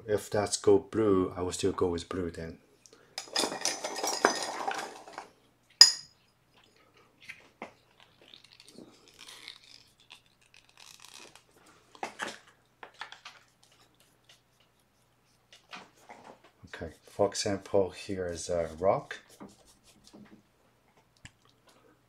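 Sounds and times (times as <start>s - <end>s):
tools clattering against container: 3.2s - 6.2s
sharp ringing clink: 5.8s - 6.2s.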